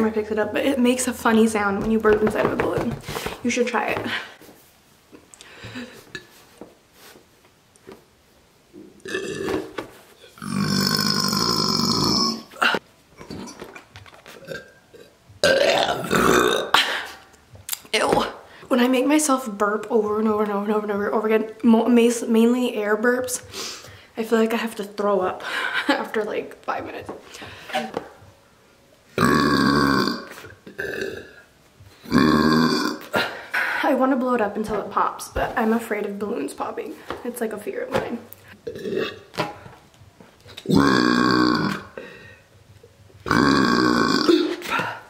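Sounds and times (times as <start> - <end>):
woman burping into balloon: 9.0 - 9.7, 10.3 - 17.3, 29.2 - 33.6, 38.6 - 39.6, 40.5 - 42.0, 43.2 - 45.0.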